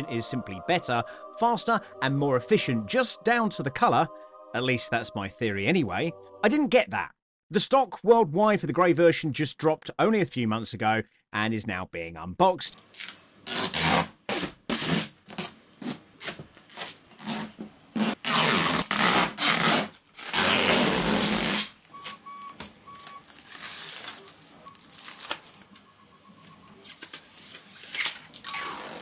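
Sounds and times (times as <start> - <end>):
plastic film peeling and crackling: 14.9 - 25.8, 26.8 - 29.0.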